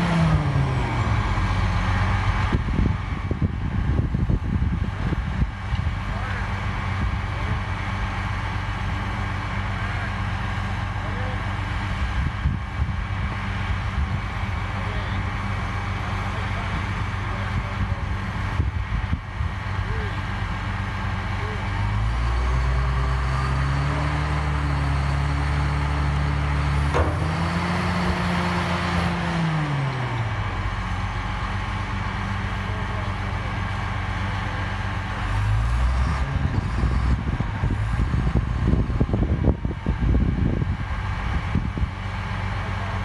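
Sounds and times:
heavy machine engine revving: 0.0s - 43.0s
low rumbling and knocks: 26.7s - 29.2s.

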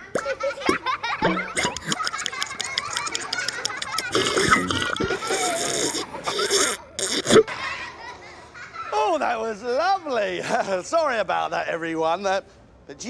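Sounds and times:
comic munching and slurping: 1.5s - 7.5s
grunt-like vocal sounds: 4.2s - 7.4s.

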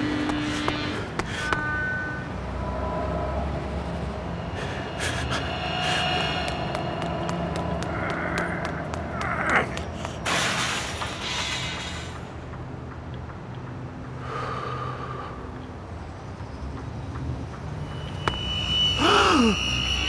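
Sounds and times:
low steady drone: 0.0s - 10.3s
brief steady tone: 17.8s - 20.0s.

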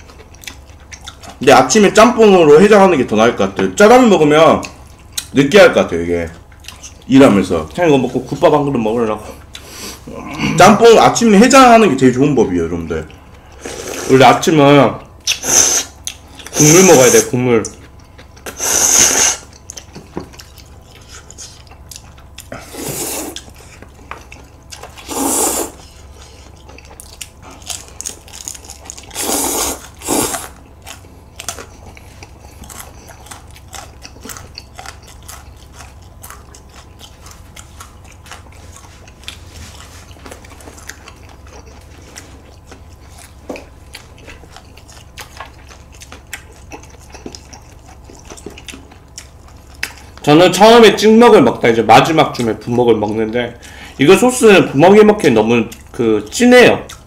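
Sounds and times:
chewing and crunching: 0.0s - 57.0s
noodles slurped loudly: 29.1s - 30.6s.

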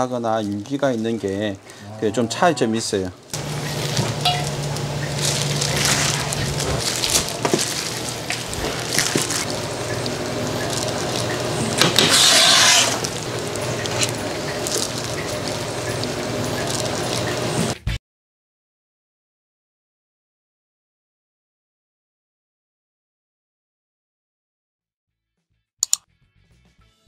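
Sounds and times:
hissing rush: 3.4s - 17.7s
dishes and utensils clinking: 3.6s - 10.0s.

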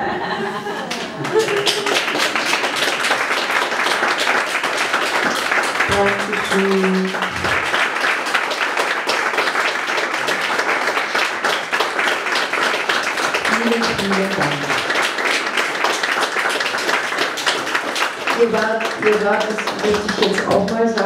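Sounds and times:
audience applauding: 0.6s - 21.0s.

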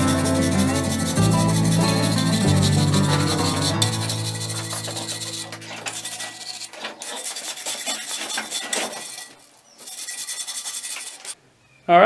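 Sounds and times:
wire brush scrubbing metal: 0.0s - 11.4s.

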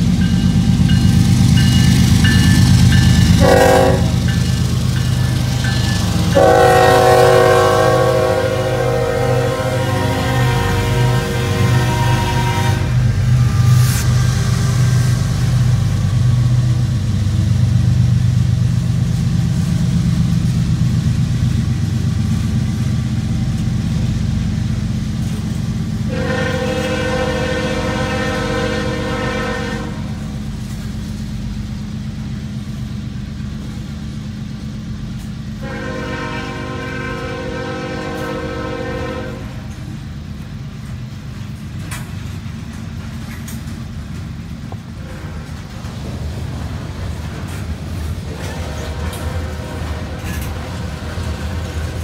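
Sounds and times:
freight train rumble: 0.0s - 52.0s
multi-note train air horn: 3.4s - 4.2s, 6.2s - 14.1s, 26.0s - 30.3s, 35.6s - 39.8s, 45.0s - 45.5s, 48.3s - 50.7s.

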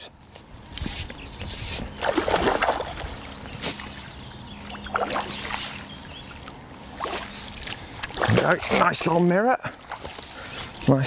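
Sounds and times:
fish splashing in water: 1.9s - 9.0s.

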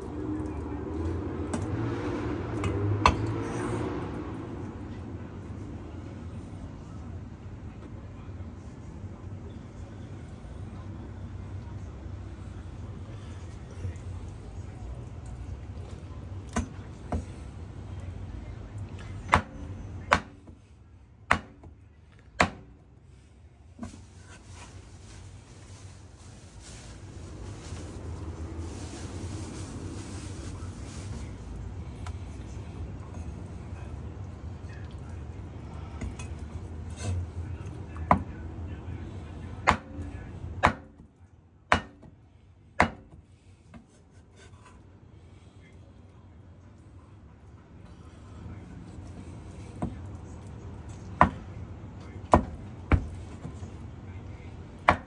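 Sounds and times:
cleaver chopping on wooden board: 20.1s - 20.4s, 21.3s - 21.7s, 22.4s - 22.6s, 40.6s - 41.0s, 41.7s - 42.1s, 42.8s - 43.1s.

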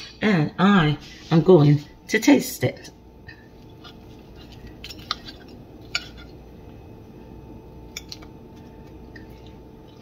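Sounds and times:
fork scraping ceramic plate: 3.7s - 6.4s.

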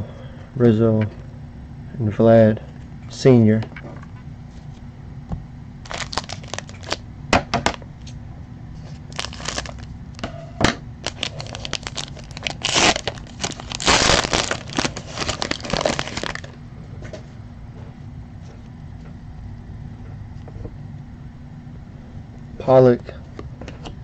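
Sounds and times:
foil wrapper tearing and crinkling: 5.8s - 7.0s, 9.0s - 9.9s, 11.0s - 16.5s.

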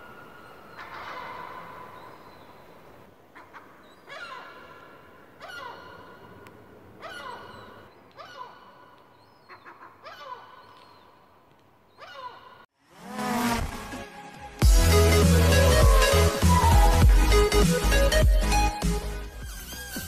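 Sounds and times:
gull calling: 3.3s - 6.4s, 7.0s - 11.0s.

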